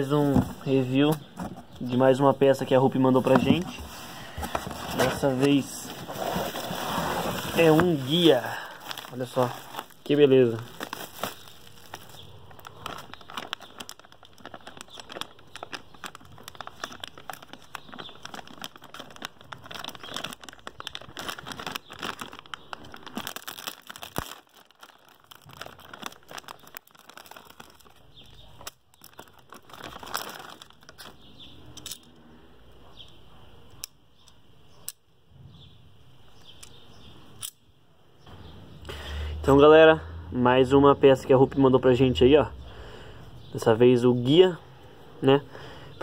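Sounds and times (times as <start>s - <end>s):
plastic bag crinkling and tearing: 3.0s - 31.4s.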